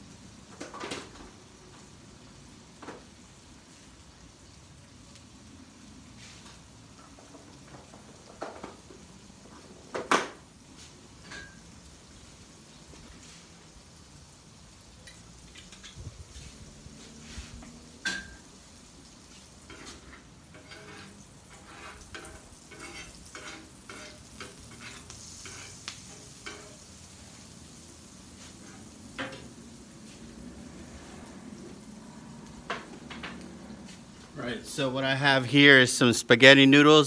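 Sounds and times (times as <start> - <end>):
butter sizzling on a griddle: 0.0 - 35.7
metal spatula scraping griddle: 15.5 - 18.5, 19.6 - 26.9, 28.3 - 31.8.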